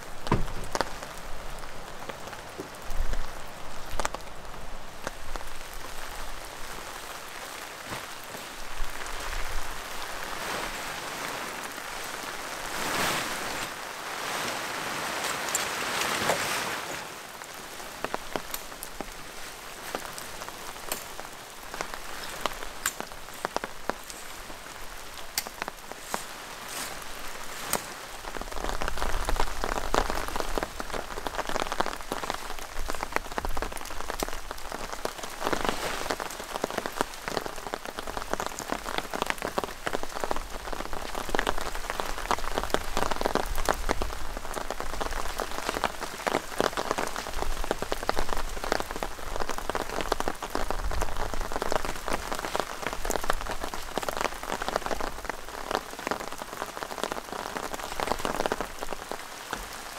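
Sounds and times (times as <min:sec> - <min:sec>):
steady rain falling: 0:00.0 - 0:59.9
tent fabric rustling: 0:06.1 - 0:33.0, 0:34.7 - 0:38.2.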